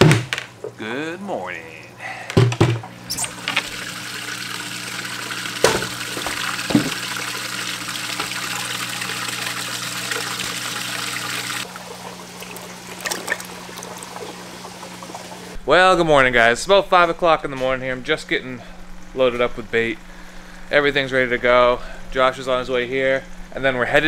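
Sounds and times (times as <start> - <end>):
water splashing and trickling: 3.2 - 15.6.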